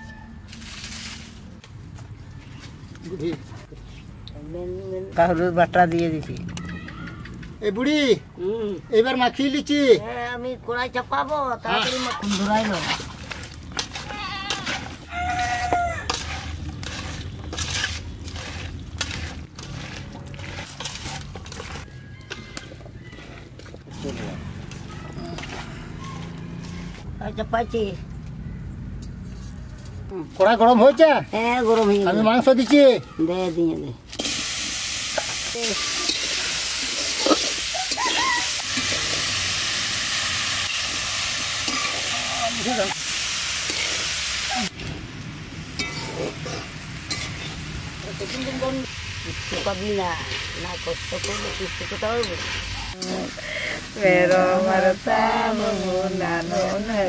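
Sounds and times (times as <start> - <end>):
rooster crowing: 0.0 - 0.6, 14.3 - 16.3, 21.8 - 23.5, 24.3 - 26.9, 37.6 - 39.1
meat sizzling in a pan: 34.1 - 44.8, 45.4 - 57.0.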